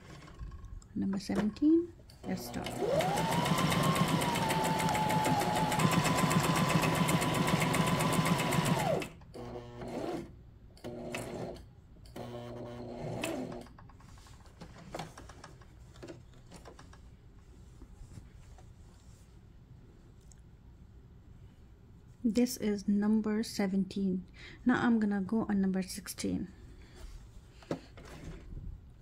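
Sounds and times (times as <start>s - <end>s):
sewing machine stitching: 2.2s - 13.7s.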